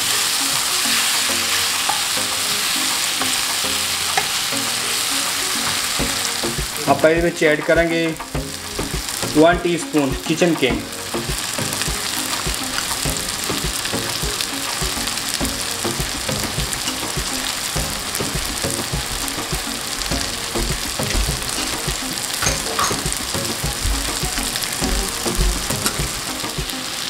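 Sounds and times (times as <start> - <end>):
food sizzling in oil: 0.0 - 27.0.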